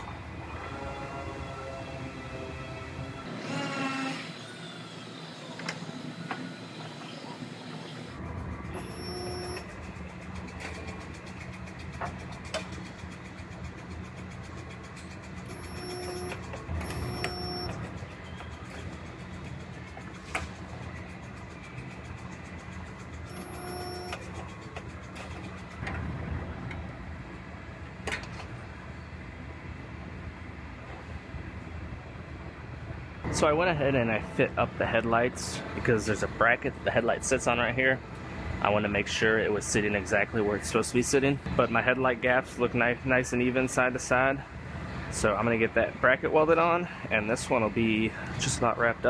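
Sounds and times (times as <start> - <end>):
short beep: 8.8 - 9.7, 15.5 - 17.8, 23.3 - 24.3
welder low hum: 22.6 - 25.1.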